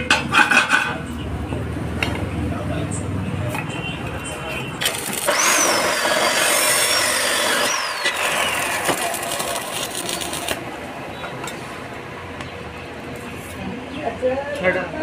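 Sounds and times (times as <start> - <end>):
arc welding crackle and hiss: 4.8 - 10.6.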